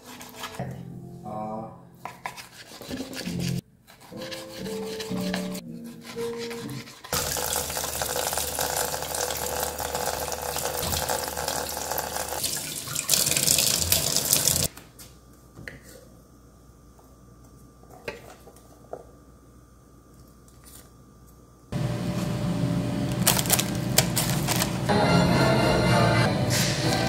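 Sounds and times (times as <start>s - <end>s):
tap running into a sink: 10.5s - 11.8s, 12.5s - 14.7s.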